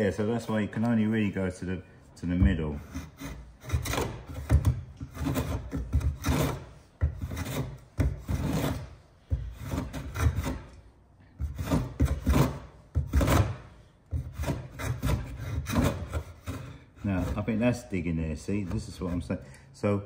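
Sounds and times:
hand plane cutting wood: 2.6 - 10.8, 11.4 - 17.8.

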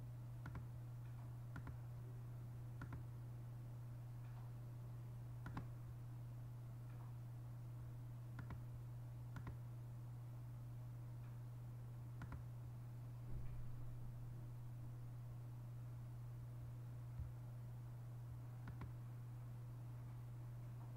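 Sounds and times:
steady low hum: 0.0 - 20.9
computer mouse clicks: 0.4 - 0.7, 1.5 - 1.8, 2.8 - 3.0, 5.4 - 5.7, 8.4 - 8.6, 9.3 - 9.6, 12.2 - 12.5, 18.6 - 19.0.

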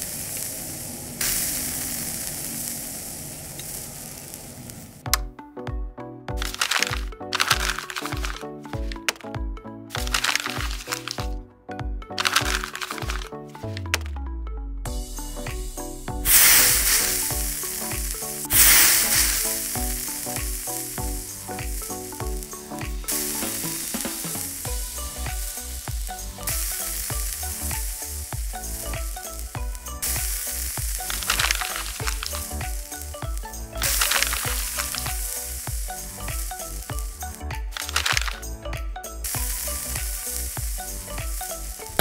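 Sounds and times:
food sizzling on a griddle: 0.0 - 4.9, 16.2 - 37.2, 39.2 - 41.8.

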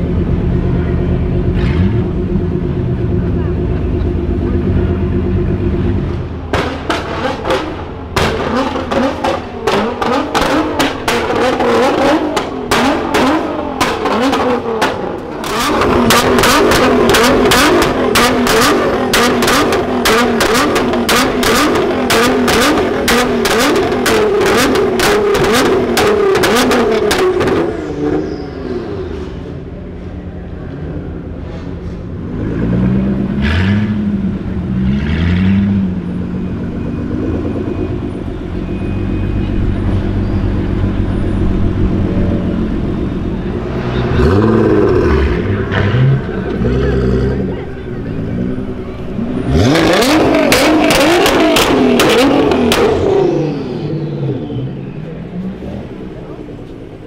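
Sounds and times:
car engine revving: 0.0 - 29.7, 30.5 - 57.0
car engine idling: 0.0 - 32.3, 35.7 - 57.0
exhaust crackles and pops: 6.5 - 27.7.

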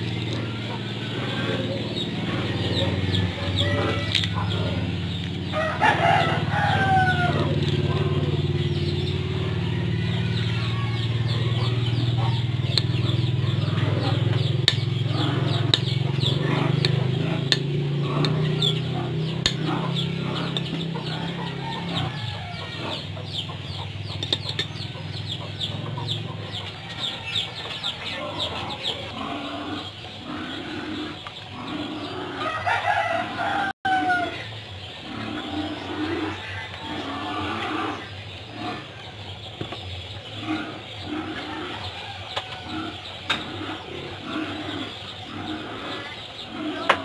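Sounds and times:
chickens clucking: 0.0 - 47.0
rooster crowing: 0.2 - 14.4, 15.1 - 23.2, 26.0 - 29.1, 32.2 - 34.5, 41.3 - 43.2.

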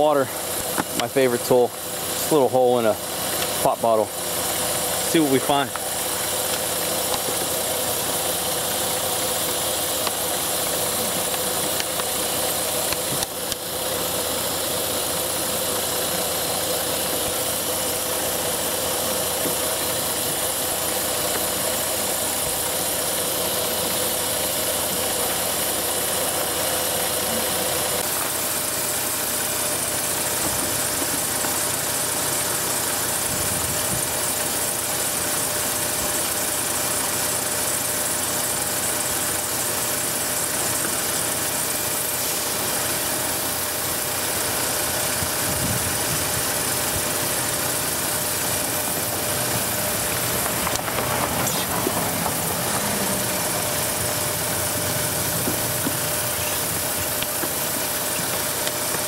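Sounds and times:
car engine idling: 0.0 - 59.0
steady hiss from intake: 38.4 - 59.0.

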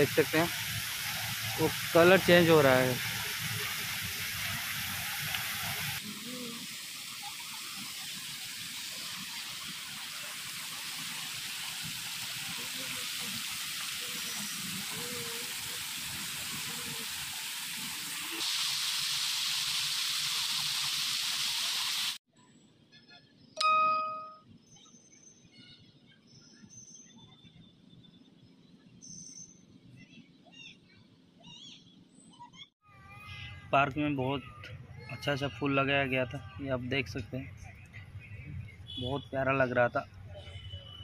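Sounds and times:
fountain water splashing: 0.0 - 22.2.

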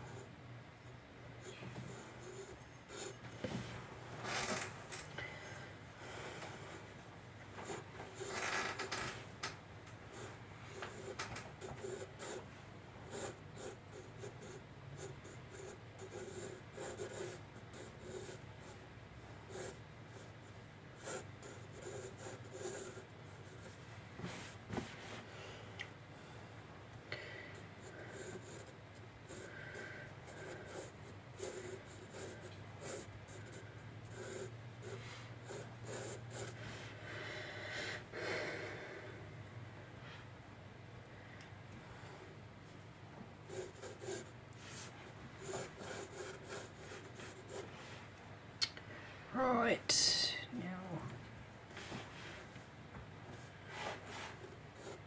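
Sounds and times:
pencil sketching on paper: 1.4 - 3.2, 10.1 - 12.4, 13.1 - 18.8, 19.5 - 20.4, 21.0 - 23.8, 27.5 - 36.8, 43.5 - 47.7, 53.7 - 55.0.

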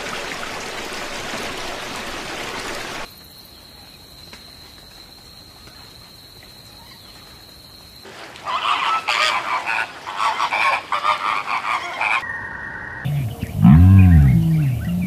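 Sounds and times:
flock of flamingos honking: 8.5 - 12.2.

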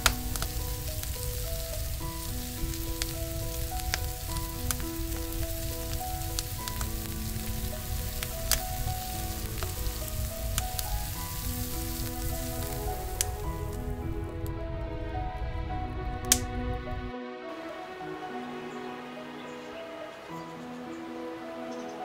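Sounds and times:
meat sizzling on a griddle: 0.0 - 13.5
soft melody of held notes: 0.0 - 22.0.

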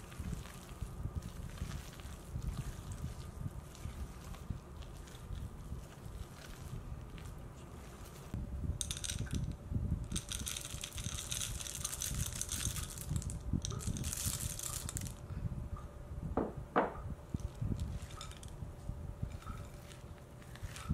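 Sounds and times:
spatula stirring batter in bowl: 0.0 - 8.4
chocolate chips clattering: 8.8 - 9.5, 10.1 - 15.2.

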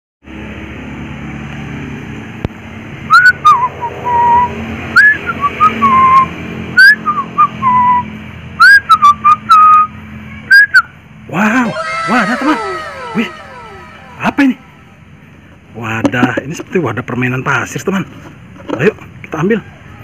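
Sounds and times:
loud sliding whistles: 11.7 - 14.7.

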